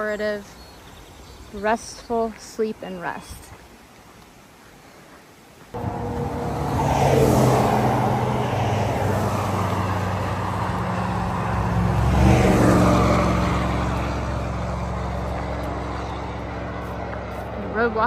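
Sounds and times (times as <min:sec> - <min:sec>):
vehicles passing: 0:05.7 - 0:18.0.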